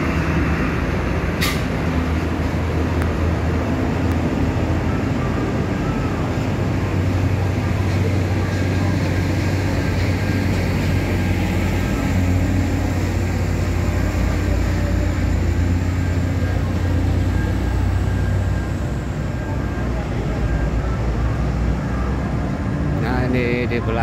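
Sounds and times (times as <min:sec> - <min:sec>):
truck diesel engine rumble: 0:00.0 - 0:24.0.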